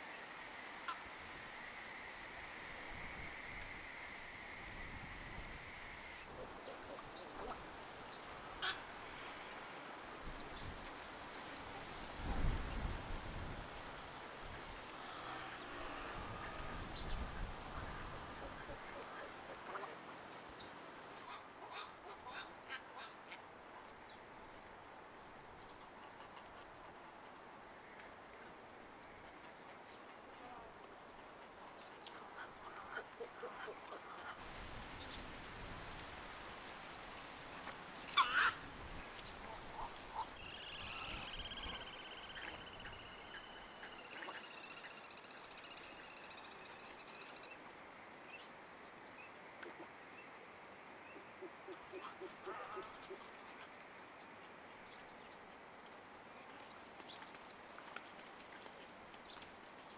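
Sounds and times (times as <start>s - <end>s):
faint bird calls: 2.9s - 9.6s, 38.0s - 38.6s, 39.2s - 47.6s.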